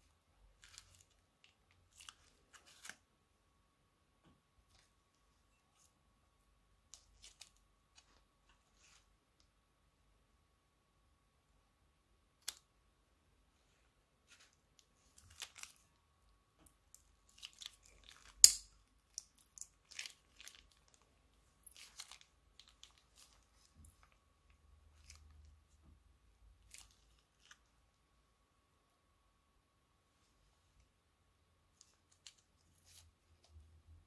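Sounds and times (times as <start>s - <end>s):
plastic crinkles: 14.3s - 15.9s, 17.3s - 24.2s.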